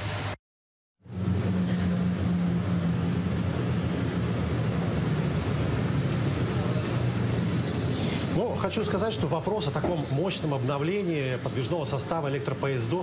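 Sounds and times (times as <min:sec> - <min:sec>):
train running gear rumble: 0:01.1 - 0:12.9.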